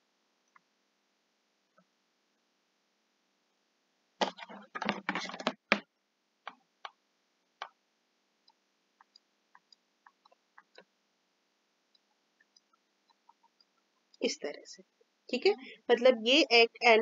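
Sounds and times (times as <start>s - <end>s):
mouse clicking: 8.4s - 10.9s, 11.9s - 14.2s.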